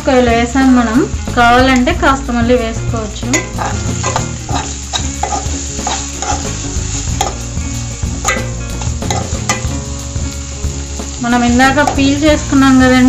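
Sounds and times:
masala sizzling in oil: 0:00.0 - 0:13.0
spatula scraping a pan: 0:03.3 - 0:09.8.

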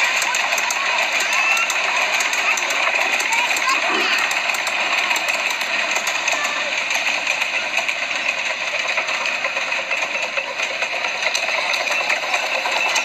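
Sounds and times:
miniature train rattling past: 0:00.0 - 0:13.0.

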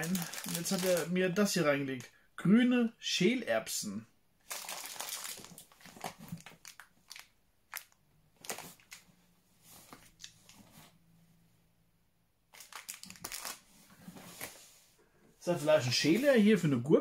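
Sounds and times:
plastic packet crinkling: 0:00.0 - 0:01.2, 0:04.4 - 0:09.1, 0:12.5 - 0:13.7.

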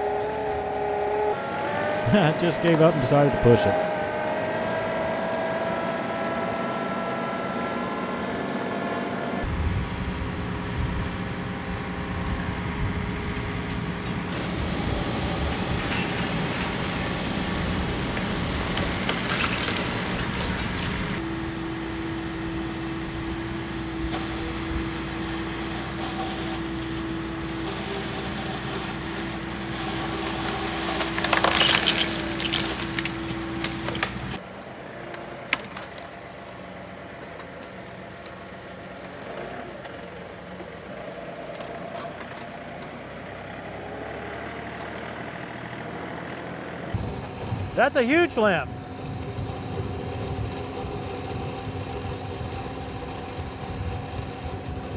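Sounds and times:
hydraulic chainsaw whine: 0:00.0 - 0:09.5, 0:14.3 - 0:54.9
tractor engine: 0:00.0 - 0:54.9
tree limb cracking: 0:18.8 - 0:21.0, 0:30.4 - 0:34.4.

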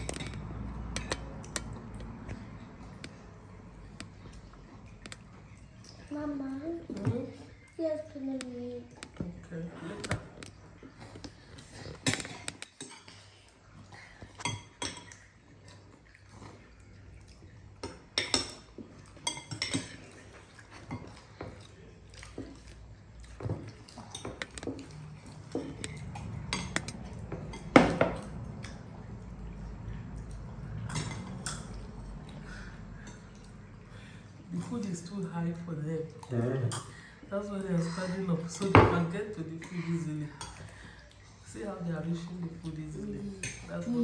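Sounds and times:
metal spoons scraping bowls: 0:00.0 - 0:03.3, 0:24.0 - 0:28.0.

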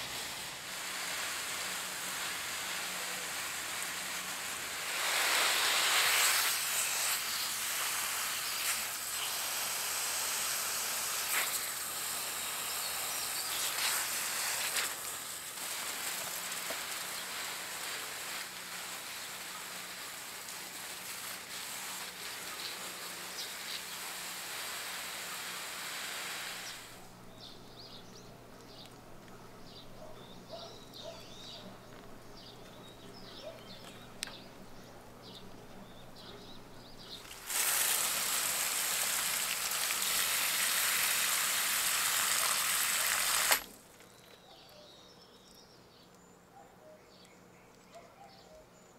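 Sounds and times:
hose spray on leaves: 0:00.0 - 0:27.2, 0:37.0 - 0:43.9
faint bird chirps: 0:44.0 - 0:48.9.

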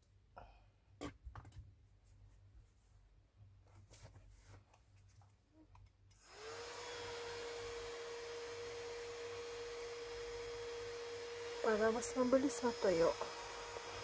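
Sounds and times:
handheld fan whirring: 0:06.2 - 0:14.0.

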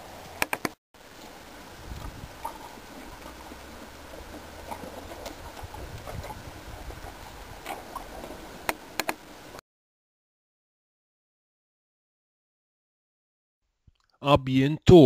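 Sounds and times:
donkey chewing: 0:01.8 - 0:08.6.

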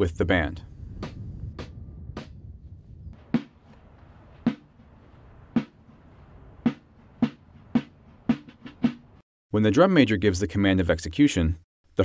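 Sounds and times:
sharp drum taps: 0:03.4 - 0:03.7, 0:04.5 - 0:04.7, 0:06.7 - 0:09.0.

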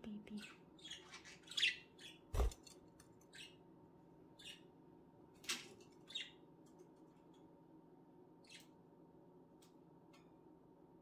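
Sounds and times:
budgerigars chirping: 0:00.8 - 0:02.5.

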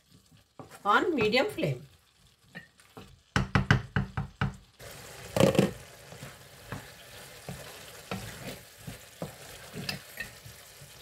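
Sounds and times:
vegetables sizzling: 0:00.0 - 0:11.0
wooden spatula knocking on pan: 0:00.6 - 0:01.5, 0:02.9 - 0:04.7
spatula scraping pan: 0:05.2 - 0:11.0.

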